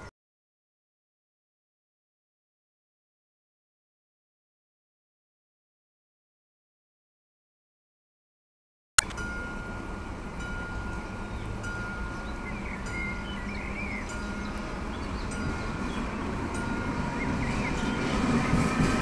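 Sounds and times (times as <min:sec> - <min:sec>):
approaching train rumble: 0:09.1 - 0:19.0.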